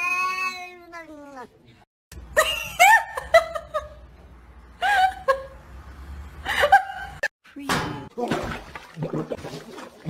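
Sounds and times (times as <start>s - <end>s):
cat meowing: 0.0s - 1.5s.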